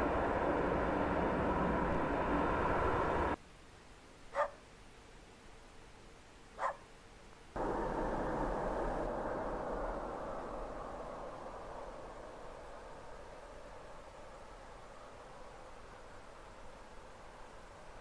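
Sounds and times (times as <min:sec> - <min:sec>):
jet engine takeoff roar: 0:00.0 - 0:03.4, 0:07.6 - 0:16.7
dog barks: 0:04.3 - 0:04.6, 0:06.6 - 0:06.9.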